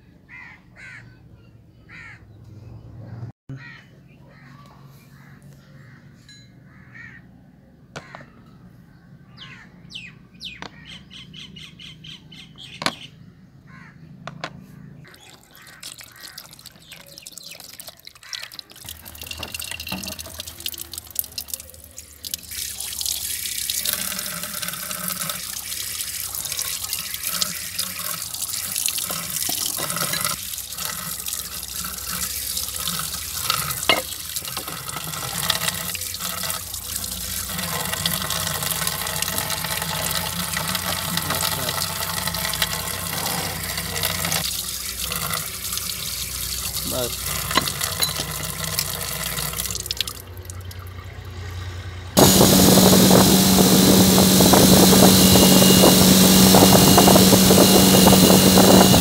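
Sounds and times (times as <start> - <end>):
bird calls: 8.0 - 18.7
tap water splashing on metal: 15.1 - 50.9.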